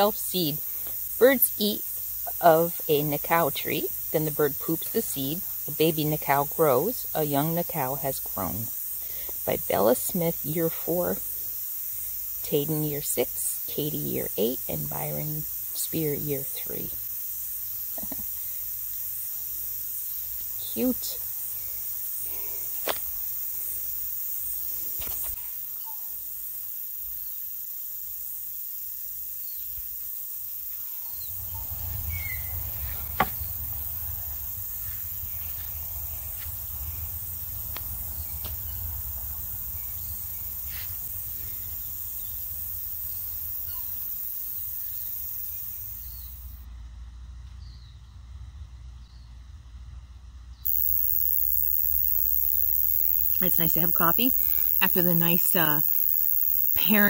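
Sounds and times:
steady high hiss: 0.0 - 46.7, 50.6 - 57.0
faint bird chirps: 30.8 - 33.1.

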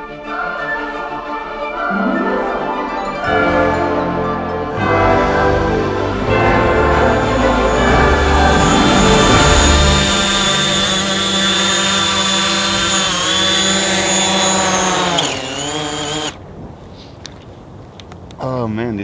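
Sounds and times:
drone propeller whine: 6.0 - 16.4.

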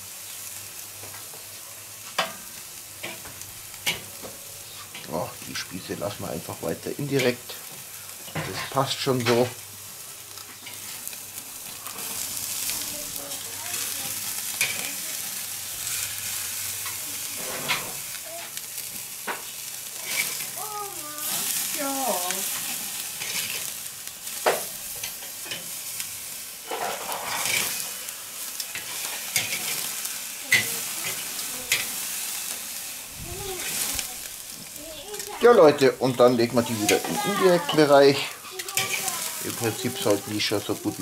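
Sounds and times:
meat sizzling over charcoal: 0.0 - 41.0
metal tongs clicking and scraping: 38.6 - 39.0.

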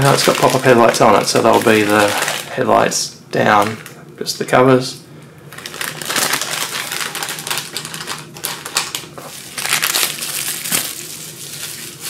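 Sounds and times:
plastic bag crinkling: 0.0 - 2.9, 5.5 - 12.0.

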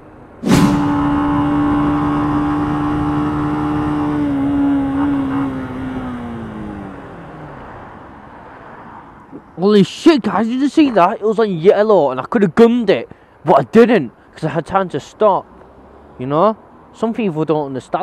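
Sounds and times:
motorcycle engine running: 0.5 - 6.0.

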